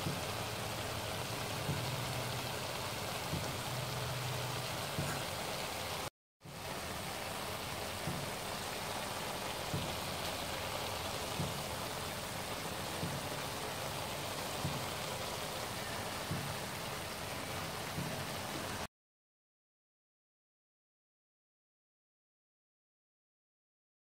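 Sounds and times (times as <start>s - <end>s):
stir-fry sizzling in a wok: 0.0s - 18.9s.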